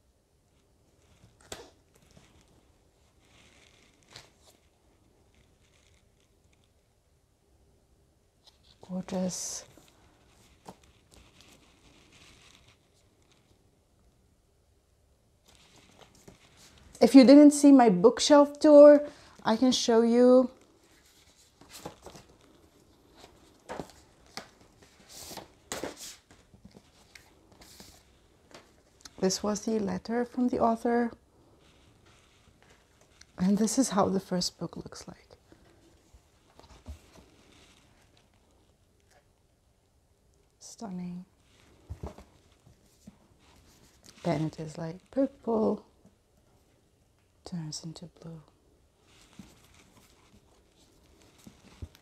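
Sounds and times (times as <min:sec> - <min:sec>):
light rustling of books: 0:00.5 - 0:07.1, 0:08.3 - 0:14.3, 0:15.4 - 0:52.0
paper rustling: 0:08.4 - 0:13.6, 0:15.4 - 0:17.0, 0:20.5 - 0:29.9, 0:49.0 - 0:52.0.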